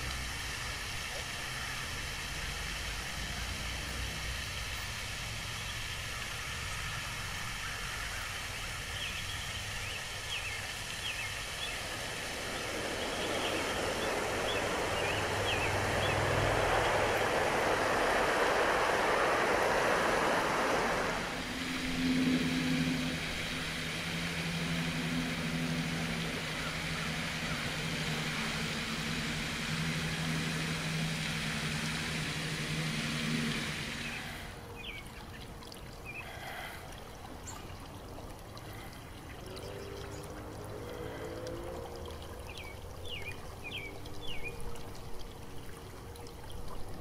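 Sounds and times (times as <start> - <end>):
low engine drone: 0.0 - 47.0
water trickling: 0.0 - 47.0
bird chirps: 9.0 - 17.2.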